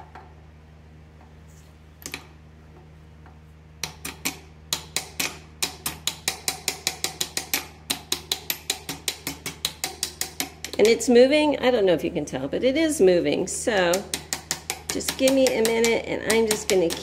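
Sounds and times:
hammer tapping metal: 3.8 - 11.1, 13.6 - 17.0.

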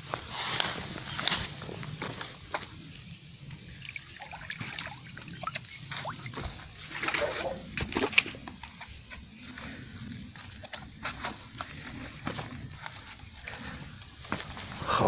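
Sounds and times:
water splashing and trickling: 2.9 - 9.2.

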